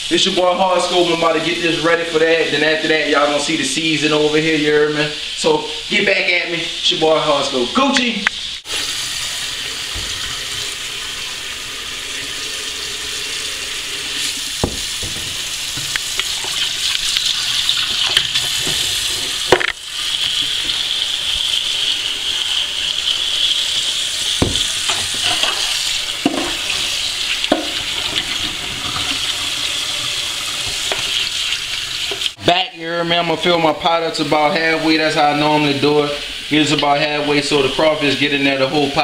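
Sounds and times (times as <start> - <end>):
tap water splashing into sink: 9.8 - 10.8, 14.2 - 20.8, 24.4 - 29.3
crawfish knocking: 24.4 - 25.0.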